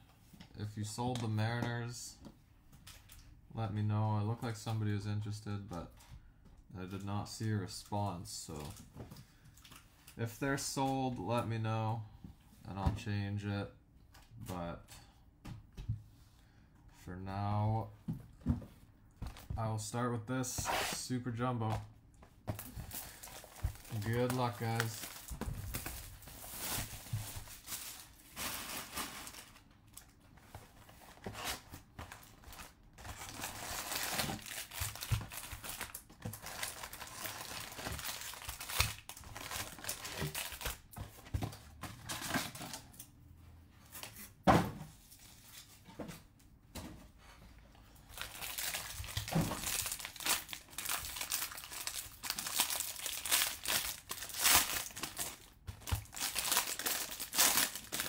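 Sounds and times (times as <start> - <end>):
card packs handled: 22.4 - 42.9, 48.1 - 58.0
plastic wrap crinkling: 22.5 - 41.0, 48.1 - 58.0
plastic shrink wrap tearing: 23.0 - 30.1, 33.1 - 40.8, 48.1 - 58.0.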